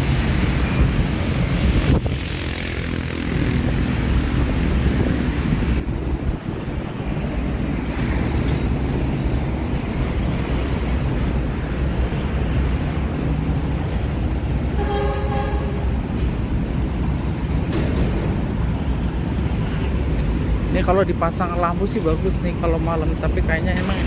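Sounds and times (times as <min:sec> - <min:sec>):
city traffic rumble: 0:00.0 - 0:24.0
car horn: 0:14.8 - 0:15.9.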